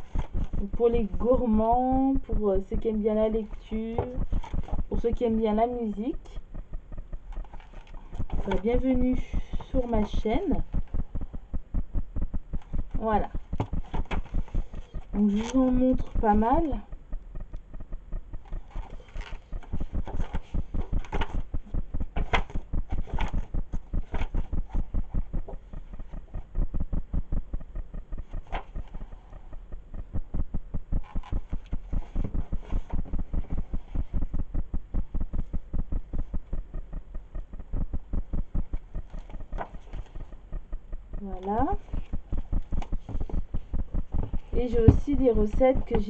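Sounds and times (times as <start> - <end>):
fast even throbbing pulse: 0.0 - 46.0
book pages turning: 13.5 - 16.2, 18.5 - 21.5, 22.1 - 25.8, 28.3 - 28.9.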